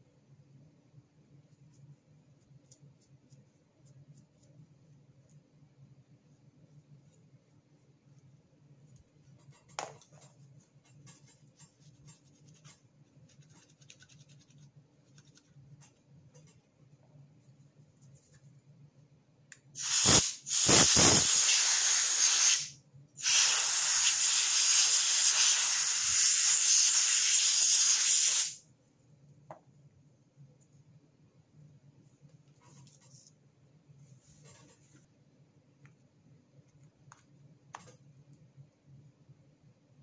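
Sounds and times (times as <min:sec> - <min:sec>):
aerosol can spraying: 0:19.8 - 0:28.6.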